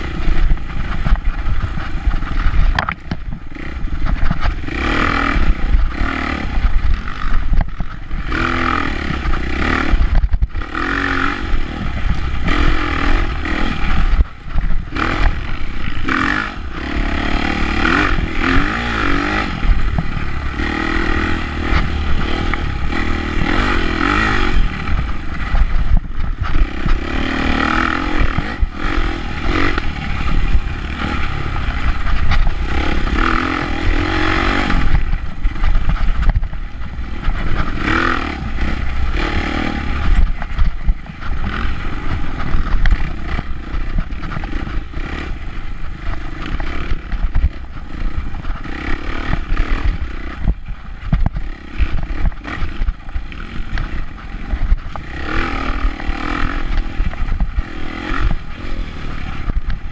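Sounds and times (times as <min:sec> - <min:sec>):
dirt bike engine revving: 0:00.0 - 0:59.9
bike clattering over bumps: 0:18.0 - 0:59.9.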